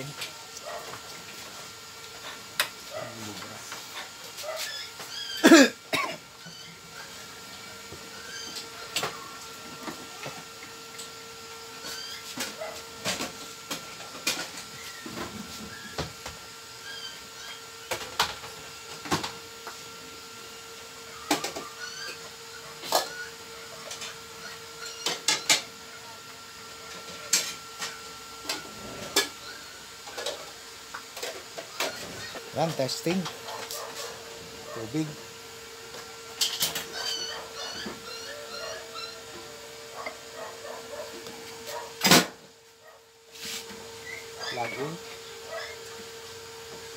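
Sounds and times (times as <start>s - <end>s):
steady hum: 0.0s - 20.2s.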